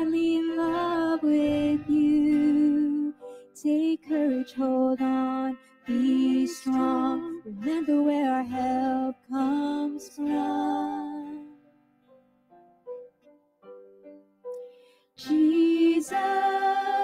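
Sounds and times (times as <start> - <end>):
person singing worship song: 0.0 - 11.5, 15.2 - 17.0.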